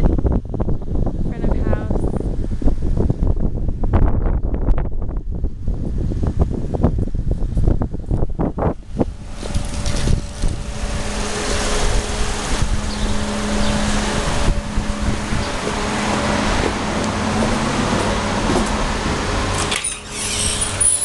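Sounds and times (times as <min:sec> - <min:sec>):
mechanical hum: 0:00.0 - 0:21.0
rushing noise: 0:08.4 - 0:21.0.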